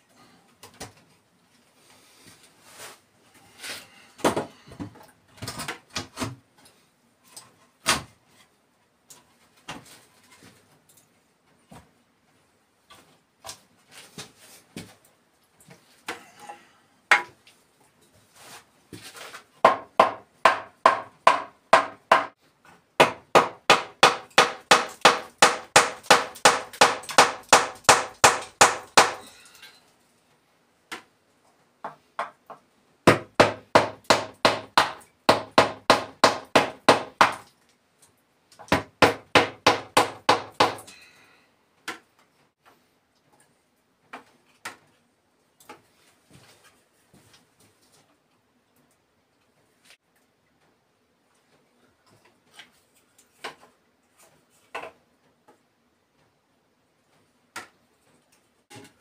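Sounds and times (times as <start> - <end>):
hammer blows on wooden frame: 23.0 - 29.4, 38.8 - 40.9.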